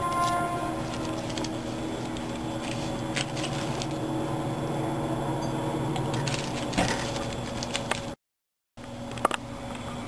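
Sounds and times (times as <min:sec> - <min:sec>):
plastic bag rustling: 0:00.0 - 0:04.2, 0:06.1 - 0:08.2
steady low hum: 0:00.0 - 0:08.2.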